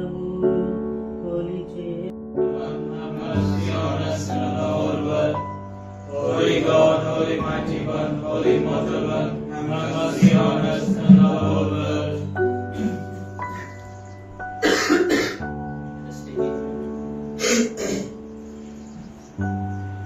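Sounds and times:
steady held chords: 1.4s - 18.3s
voices chanting: 2.4s - 13.7s.

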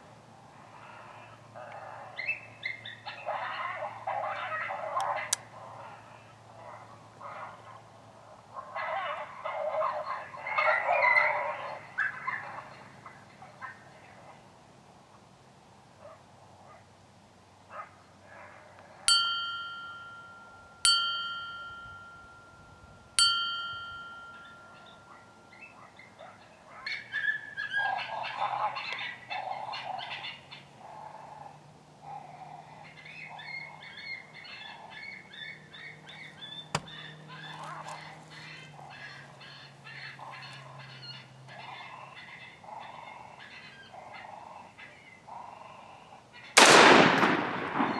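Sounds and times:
bright bell-like dings: 19.1s - 25.8s.

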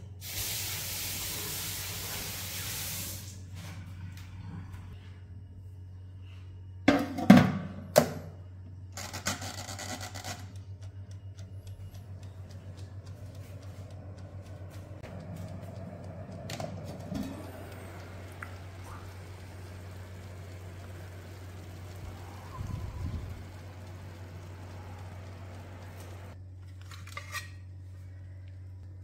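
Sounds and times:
oven low hum: 0.0s - 29.0s.

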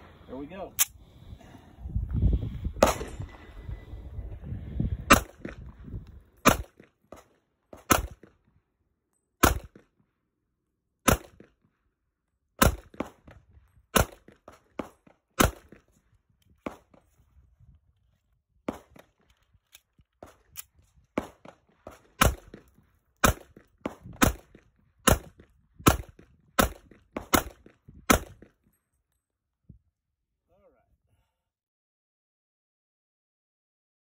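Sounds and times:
pistol shots: 5.1s - 5.5s, 6.4s - 8.3s, 9.4s - 9.8s, 11.1s - 11.5s, 12.6s - 13.3s, 13.9s - 15.8s, 21.2s - 28.5s.

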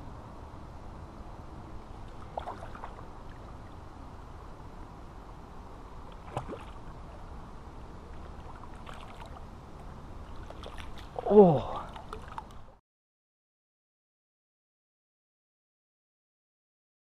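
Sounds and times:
low background noise: 0.0s - 12.8s
fish splashing at water surface: 2.1s - 3.4s, 6.1s - 6.9s, 8.2s - 9.4s, 10.2s - 12.6s.

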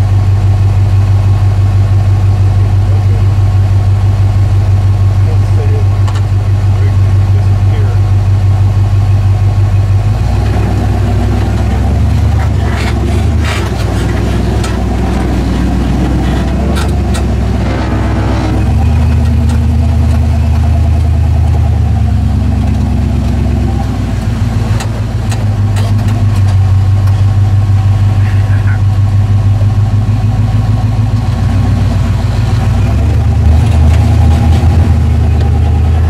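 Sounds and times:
off-road vehicle engine running: 0.0s - 36.0s.

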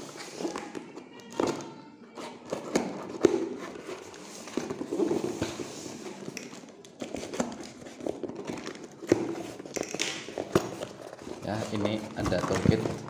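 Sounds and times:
cardboard scraping and rustling: 2.2s - 6.2s, 10.3s - 13.0s.

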